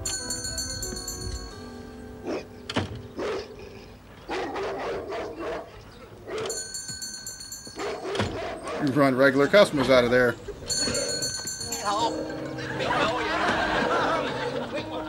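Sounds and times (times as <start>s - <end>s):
shop door bell ringing: 0.0s - 2.2s, 6.5s - 8.1s, 10.4s - 14.0s
music: 0.0s - 4.1s
dog barking: 3.2s - 3.6s, 4.3s - 6.5s, 7.8s - 8.9s.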